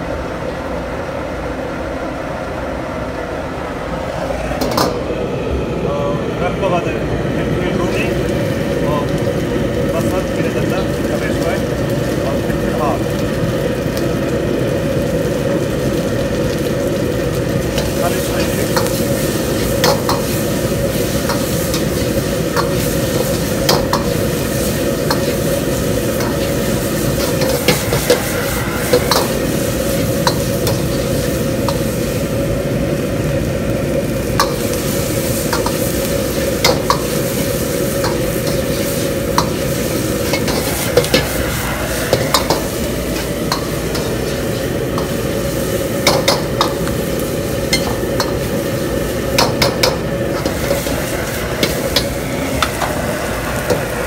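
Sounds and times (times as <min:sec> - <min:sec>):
gas burner rushing: 0:00.0 - 0:54.0
vegetables sizzling in hot oil: 0:07.5 - 0:54.0
metal ladle scraping a wok: 0:35.5 - 0:45.6.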